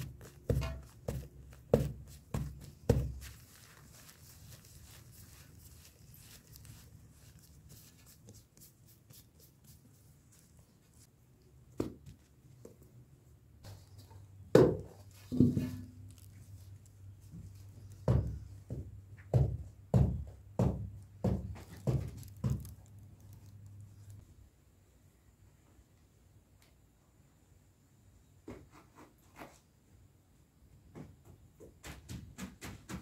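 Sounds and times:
dough balls thumping: 0:00.0 - 0:06.8, 0:17.3 - 0:23.4.

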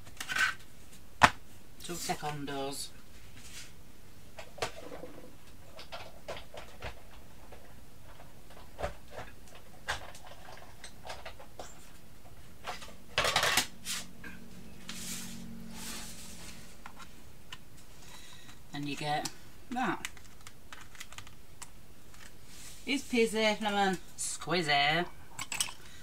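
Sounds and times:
steady low hum: 0:10.5 - 0:24.2.

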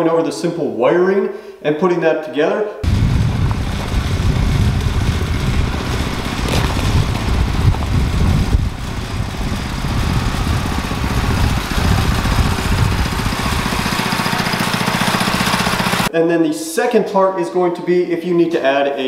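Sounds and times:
go kart engine running: 0:02.8 - 0:16.1.

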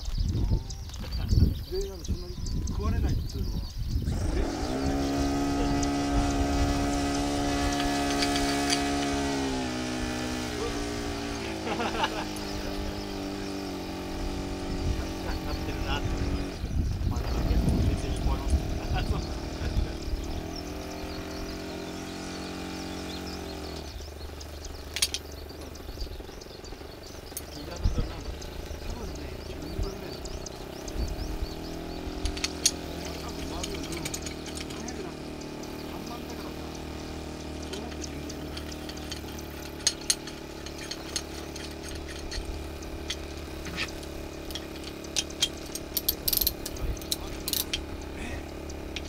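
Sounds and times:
faint high chirping: 0:00.0 - 0:11.5
distant engine humming: 0:00.0 - 0:49.0
metal tool clicks and clinks: 0:07.6 - 0:09.1, 0:24.9 - 0:25.3, 0:32.2 - 0:35.0, 0:37.6 - 0:48.0.

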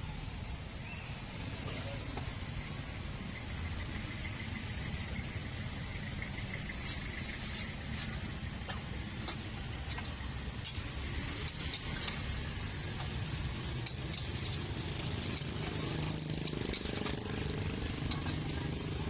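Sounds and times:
metal spatula scraping wok: 0:13.0 - 0:18.9.

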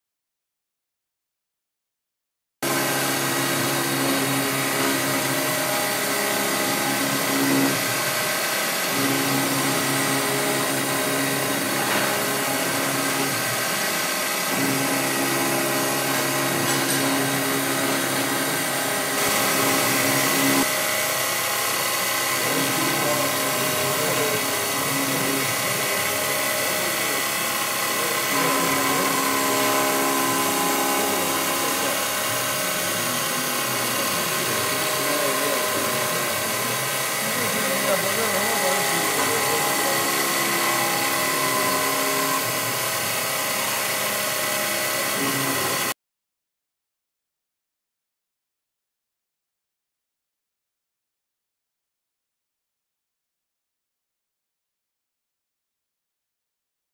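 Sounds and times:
milling machine cutting steel: 0:02.6 - 0:45.9.

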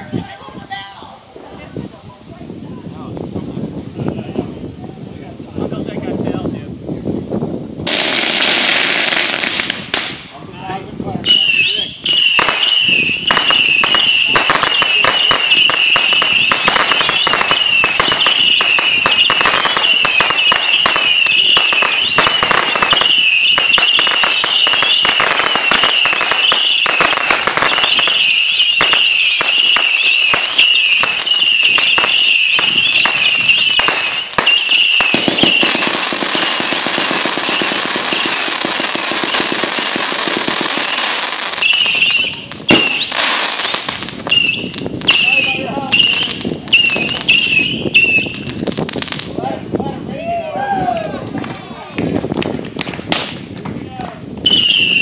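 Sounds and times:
firework hiss: 0:00.0 - 0:49.4
sharp firework crack: 0:07.8 - 0:49.4, 0:51.4 - 0:53.8
fireworks crackling pops: 0:07.8 - 0:49.5, 0:51.3 - 0:55.0
high wavering firework whistle: 0:11.2 - 0:39.5, 0:40.4 - 0:48.6, 0:54.4 - 0:55.0.

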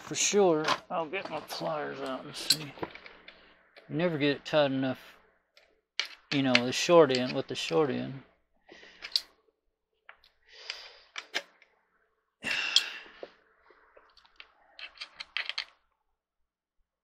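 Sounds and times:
metal tools clicking and scraping: 0:02.0 - 0:03.9, 0:05.6 - 0:07.8, 0:09.0 - 0:09.3, 0:14.2 - 0:15.8.

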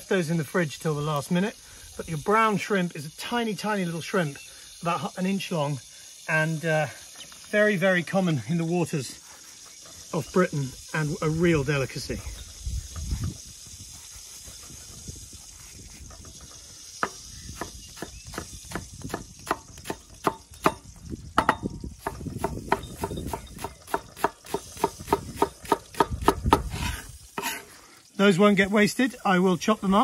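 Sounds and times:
knife chopping on wooden board: 0:21.4 - 0:26.7.

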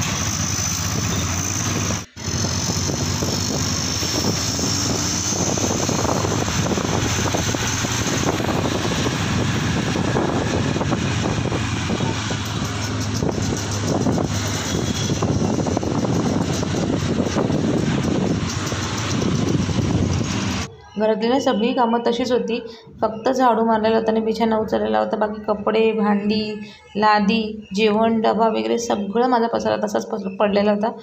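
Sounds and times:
motorbike engine running: 0:00.0 - 0:20.7
wind rushing over microphone: 0:00.7 - 0:20.7.

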